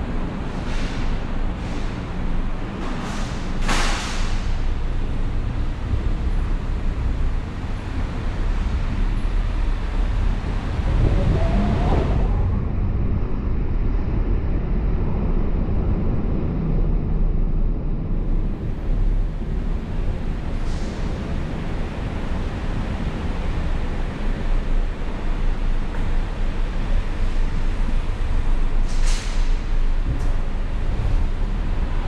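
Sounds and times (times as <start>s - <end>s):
road and tyre rumble: 0.0s - 32.0s
hiss of wet road: 0.5s - 2.1s, 2.9s - 4.7s, 19.8s - 26.3s, 27.7s - 30.0s.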